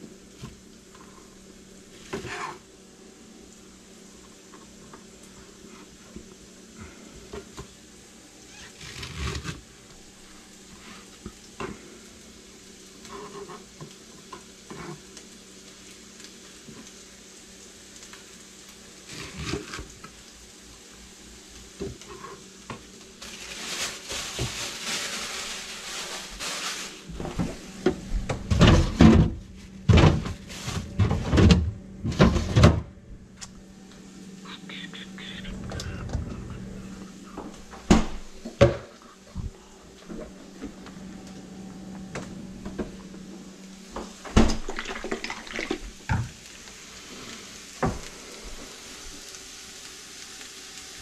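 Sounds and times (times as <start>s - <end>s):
steady hiss: 0.0s - 28.3s, 33.3s - 51.0s
refrigerator door thumps and rattles: 28.3s - 32.9s.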